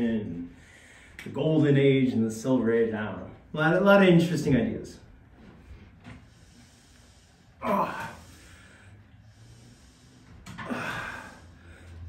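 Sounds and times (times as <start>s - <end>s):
man breathing heavily: 0.5s - 1.2s, 5.6s - 12.0s.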